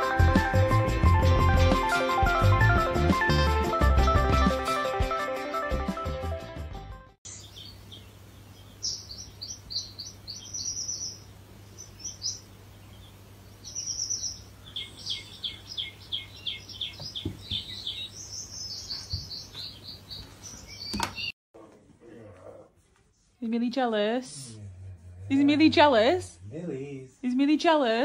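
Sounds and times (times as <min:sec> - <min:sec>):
high bird-like chirps: 0:13.6 - 0:21.4.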